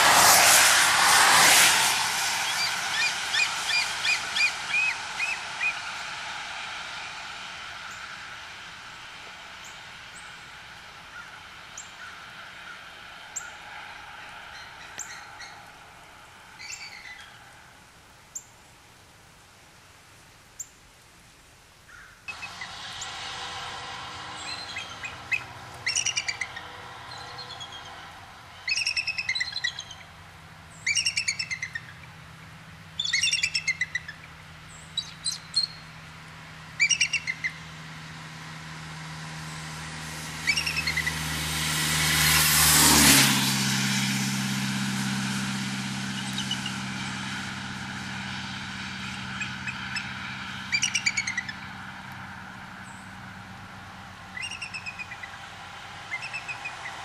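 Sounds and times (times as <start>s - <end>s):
passing vehicle: 0.0s - 18.8s, 22.3s - 57.0s
eagles high piping chatter: 22.3s - 30.1s, 49.0s - 51.6s.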